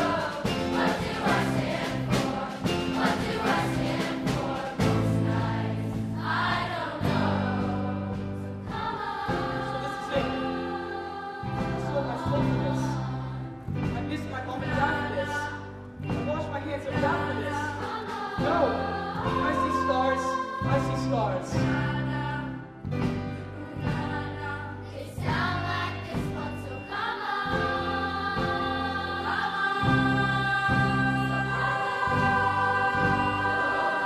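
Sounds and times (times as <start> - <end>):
live band playing: 0.0 - 6.1
choir singing: 0.0 - 13.7, 16.9 - 22.7, 23.6 - 34.0.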